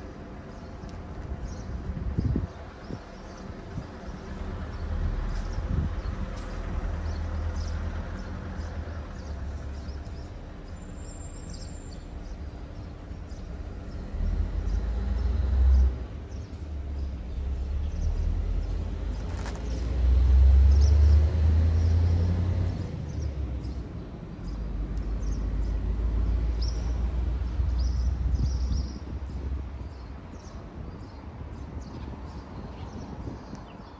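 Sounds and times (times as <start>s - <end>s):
wind buffeting microphone: 1.0s - 8.3s, 27.4s - 33.9s.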